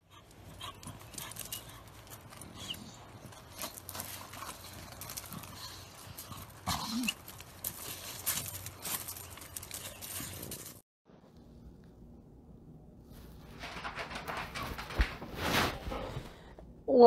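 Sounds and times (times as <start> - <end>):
dog paws scuffing on gravel: 0.3 - 10.8.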